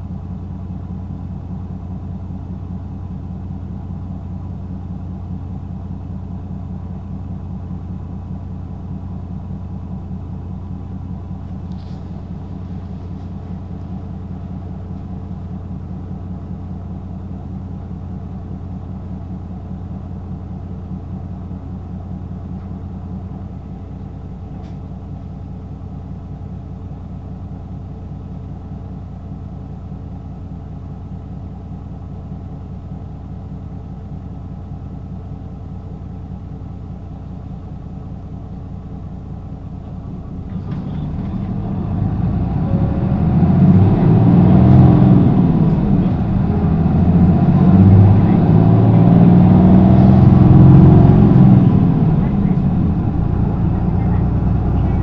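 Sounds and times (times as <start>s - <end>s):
bus diesel engine idling: 0.0s - 55.0s
bus engine revving up: 40.4s - 55.0s.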